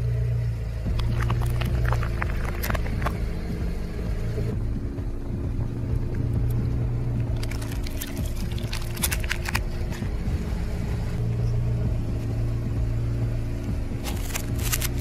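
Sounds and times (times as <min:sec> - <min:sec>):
car engine running: 0:00.0 - 0:15.0
tyre crushing crackling objects: 0:00.9 - 0:03.2, 0:07.3 - 0:10.2, 0:14.0 - 0:15.0.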